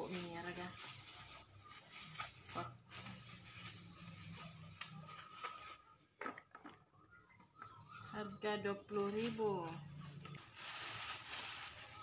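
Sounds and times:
plastic bag rustling: 0.0 - 6.8, 7.8 - 12.0.

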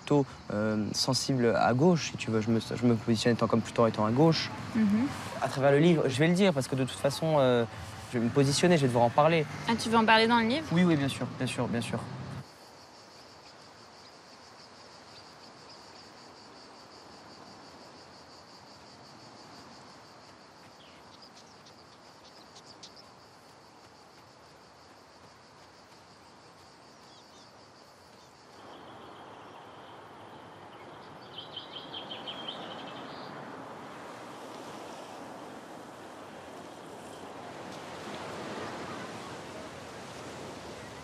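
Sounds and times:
insects chirring buzz: 0.0 - 41.0
low insect trill: 0.0 - 41.0
bird chirps: 20.8 - 23.1, 28.2 - 33.4.

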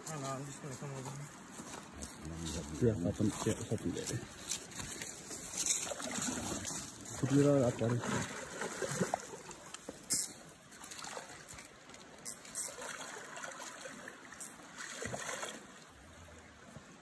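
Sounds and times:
moving water wash: 2.8 - 17.0
fish splashing in water: 5.7 - 11.6, 12.2 - 15.8.

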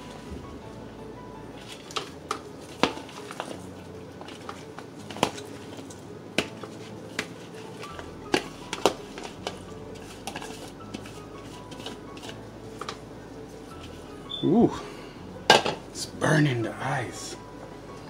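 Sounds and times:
faint background music: 0.0 - 18.0.

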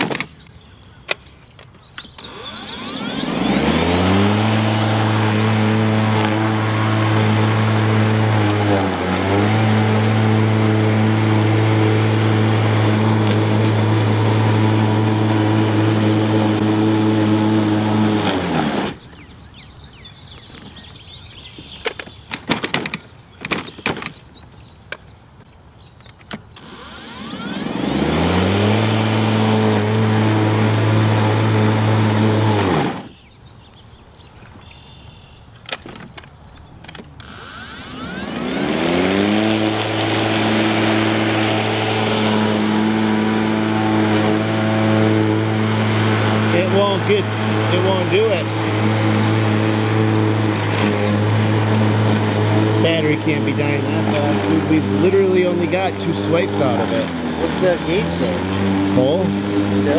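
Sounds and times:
mower clicks: 0.0 - 19.0, 26.0 - 33.0, 35.5 - 46.5, 48.4 - 55.0
electric lawn mower motor whining: 1.8 - 24.2, 26.1 - 33.3, 34.7 - 59.9.

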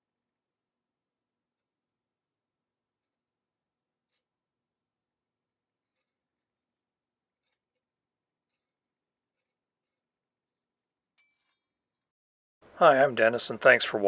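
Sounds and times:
small metallic click with ring: 11.2 - 11.6.

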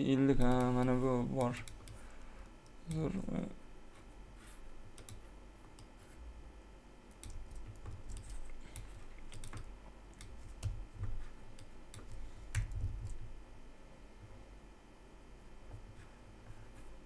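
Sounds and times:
typing on computer keyboard: 5.0 - 5.2, 7.1 - 10.8.

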